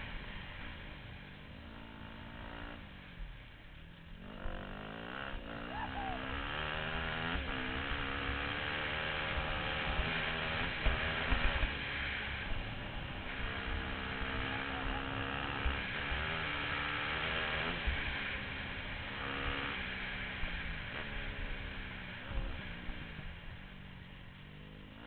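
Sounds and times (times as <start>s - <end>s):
motorcycle engine accelerating: 0.0s - 25.0s.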